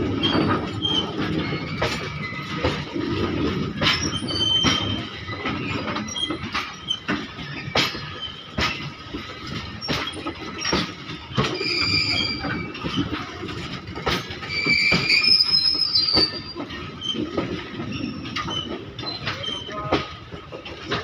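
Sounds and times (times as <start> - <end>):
train wheels knocking over rail joints: 0.0 - 21.0
high metallic squeal: 11.3 - 13.1, 14.4 - 17.2.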